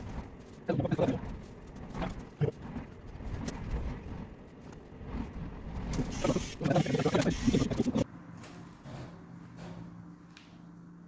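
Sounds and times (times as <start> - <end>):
people talking: 0.6 - 1.3, 6.2 - 8.0.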